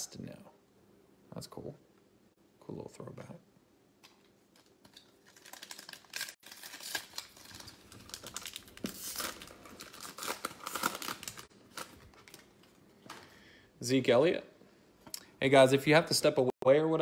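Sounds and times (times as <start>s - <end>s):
foil wrapper crinkling and tearing: 4.5s - 12.7s.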